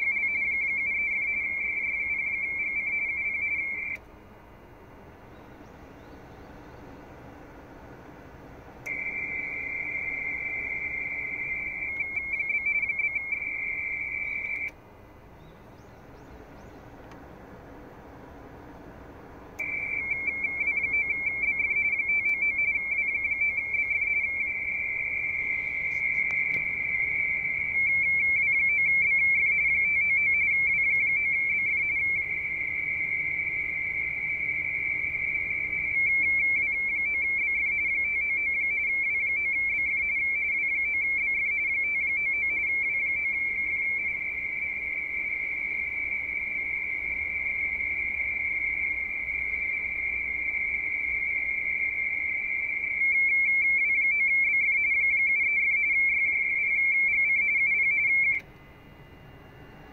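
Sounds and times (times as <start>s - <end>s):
two-tone data signal warble: 0.0s - 4.0s, 8.8s - 14.7s, 19.6s - 58.4s
radio band hiss: 23.9s - 28.0s.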